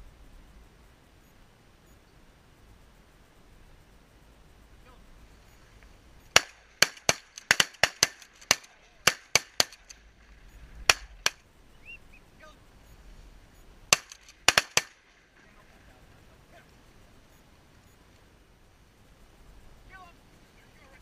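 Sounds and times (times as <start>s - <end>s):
shotgun blasts: 6.3s - 11.4s, 13.9s - 15.2s.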